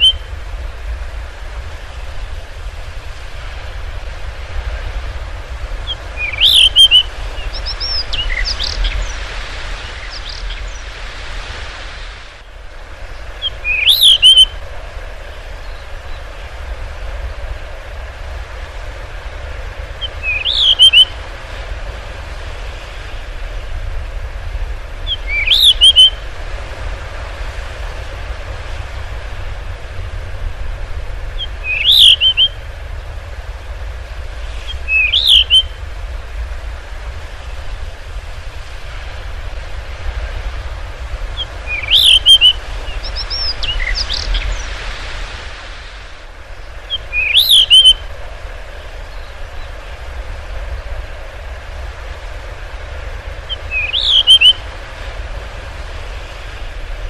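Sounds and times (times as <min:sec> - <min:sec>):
bird singing whistled phrases: 0:00.0 - 0:00.3, 0:05.9 - 0:09.2, 0:13.4 - 0:14.6, 0:20.0 - 0:21.2, 0:25.1 - 0:26.2, 0:31.6 - 0:32.6, 0:34.7 - 0:35.8, 0:41.7 - 0:44.6, 0:46.9 - 0:48.0, 0:53.5 - 0:54.6
low rumble background noise: 0:00.0 - 0:57.0.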